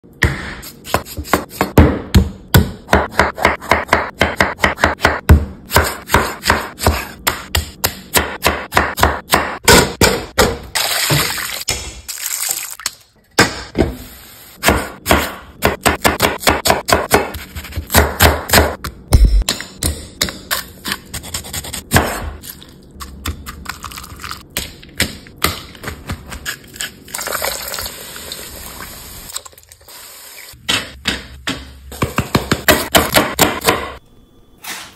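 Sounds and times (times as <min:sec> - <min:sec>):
knife chopping on wooden board: 0:00.2 - 0:10.6, 0:14.6 - 0:22.3, 0:30.7 - 0:34.0.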